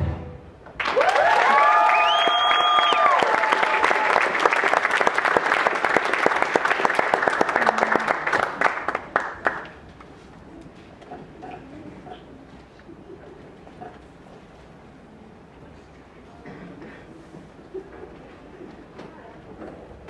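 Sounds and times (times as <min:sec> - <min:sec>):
audience applauding: 0:00.7 - 0:09.8.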